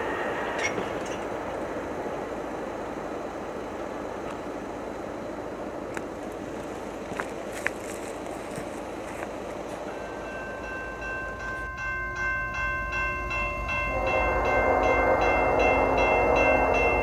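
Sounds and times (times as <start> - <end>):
railway crossing bell ringing: 0.0 - 1.7, 9.7 - 17.0
train rumble: 0.0 - 17.0
train horn: 13.8 - 17.0.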